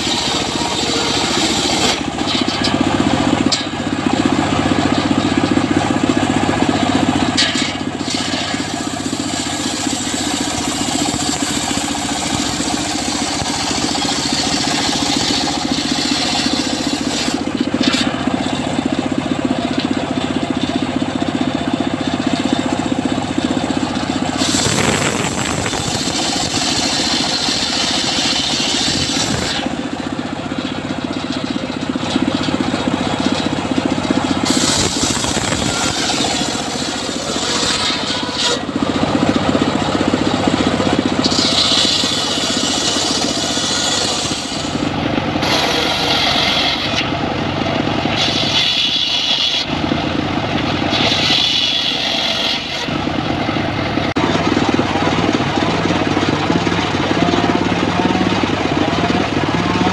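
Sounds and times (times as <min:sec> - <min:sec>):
saw blade cutting hiss: 0:00.0 - 0:02.1, 0:07.4 - 0:18.0, 0:24.4 - 0:29.8, 0:34.4 - 0:38.6, 0:41.2 - 0:44.8, 0:45.4 - 0:47.1, 0:48.2 - 0:49.8, 0:50.9 - 0:52.9
saw engine running: 0:00.0 - 0:59.9.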